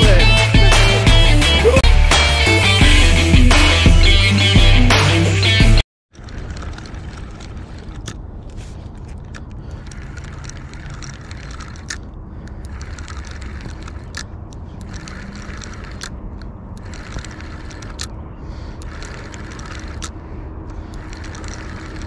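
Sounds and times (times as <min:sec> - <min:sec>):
spinning reel gears whirring: 0:06.2 - 0:08.2, 0:09.7 - 0:14.2, 0:14.8 - 0:18.1, 0:18.8 - 0:22.0
reel clicks: 0:06.2 - 0:18.2, 0:18.8 - 0:22.0.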